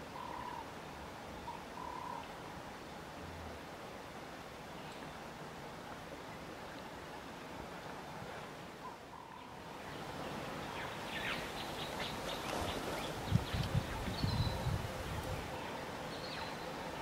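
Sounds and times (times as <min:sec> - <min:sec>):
steady grassland hiss: 0:00.0 - 0:17.0.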